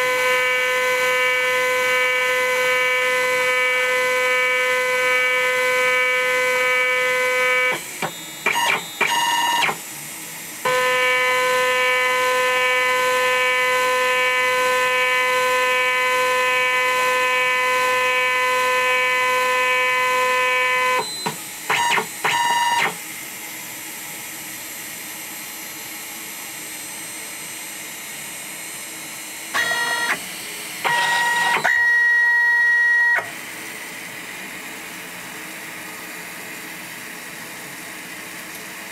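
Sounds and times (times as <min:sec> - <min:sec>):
continuity buzzer buzzing: 0:00.0 - 0:09.8, 0:10.6 - 0:23.0, 0:29.6 - 0:30.2, 0:30.8 - 0:33.3.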